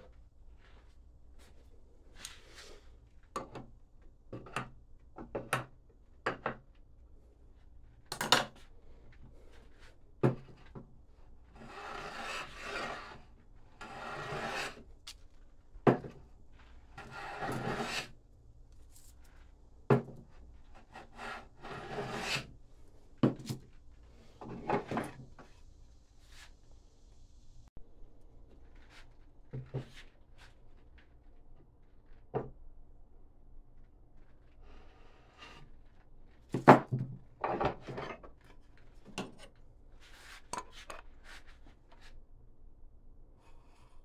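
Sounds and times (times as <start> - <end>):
rasping strokes across wood: 11.5 - 13.2, 13.8 - 14.9, 17.0 - 18.1, 20.7 - 22.5.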